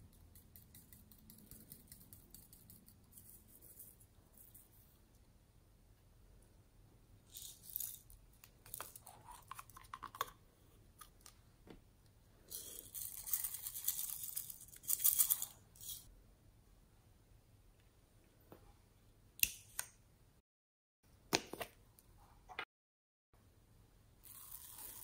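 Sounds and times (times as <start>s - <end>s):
dry granules pouring rattling: 24.2s - 25.0s.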